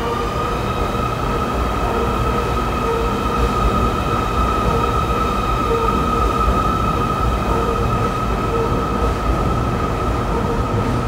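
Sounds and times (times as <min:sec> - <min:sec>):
high-pitched train whine: 0:00.0 - 0:11.0
metro train rumbling: 0:00.0 - 0:11.0.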